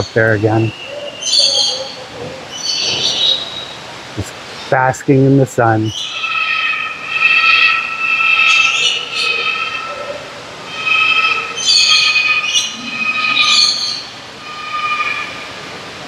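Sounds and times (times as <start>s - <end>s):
lorikeets screeching: 0.0s - 3.9s, 5.8s - 15.7s
bird chirps and chatter: 11.0s - 14.1s.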